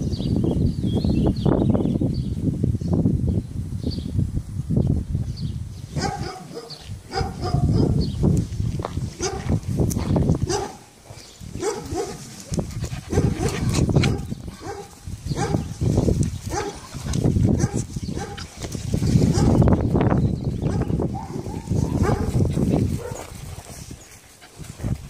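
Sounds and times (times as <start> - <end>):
dogs barking: 5.9 - 8.1, 9.2 - 9.6, 10.4 - 10.9, 11.5 - 15.8, 16.5 - 18.5, 19.2 - 19.7, 20.6 - 23.4
dogs scuffling: 8.6 - 19.7, 21.6 - 25.0.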